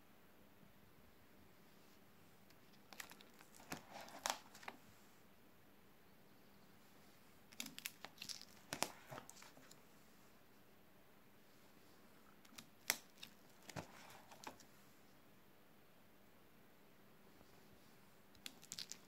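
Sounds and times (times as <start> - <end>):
plastic pages crinkling: 2.5 - 4.8, 7.5 - 9.8, 12.5 - 14.7, 18.4 - 19.0.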